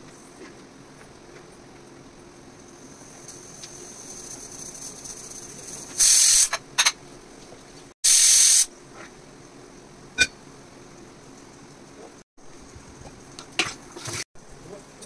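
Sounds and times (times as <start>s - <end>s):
loud hissing bursts: 5.9s - 6.6s, 8.0s - 8.7s.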